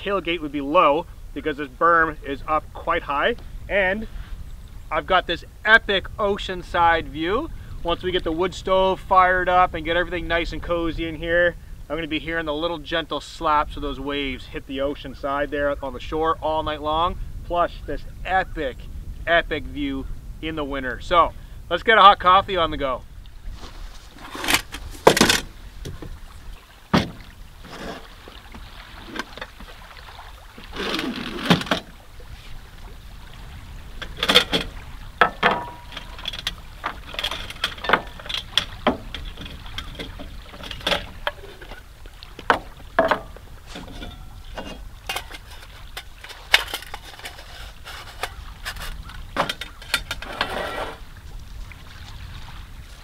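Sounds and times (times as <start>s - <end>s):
low steady rumble: 30.4s - 53.0s
coffee gear clattering: 34.0s - 41.8s, 42.5s - 51.0s.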